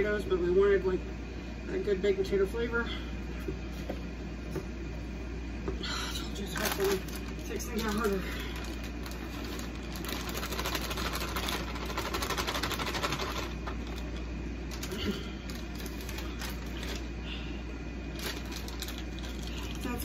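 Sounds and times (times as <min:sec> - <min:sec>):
plastic bag crinkling: 0:06.4 - 0:17.1, 0:18.1 - 0:20.0.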